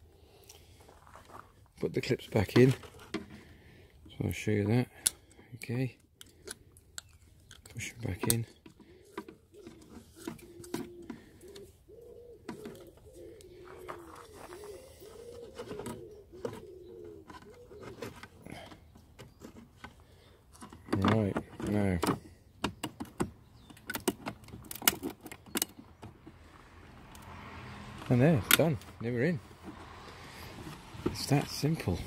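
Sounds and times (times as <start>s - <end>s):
pigeon cooing: 8.8s - 19.4s
plastic clicks: 19.4s - 26.1s.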